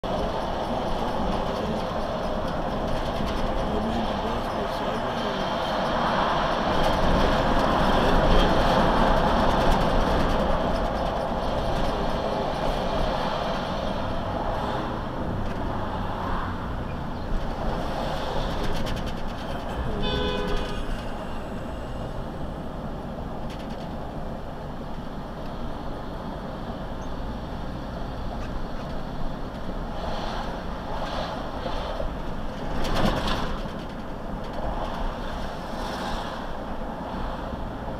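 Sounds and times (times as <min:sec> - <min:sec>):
vehicle road and engine noise: 0:00.0 - 0:37.9
car horn: 0:19.9 - 0:21.0.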